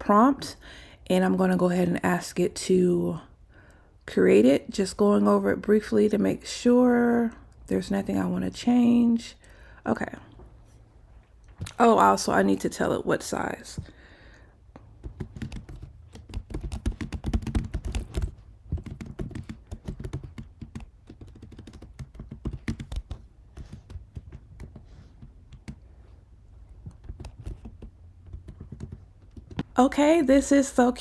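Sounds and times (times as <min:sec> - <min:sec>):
computer keyboard typing: 0:14.9 - 0:25.8, 0:26.8 - 0:29.8.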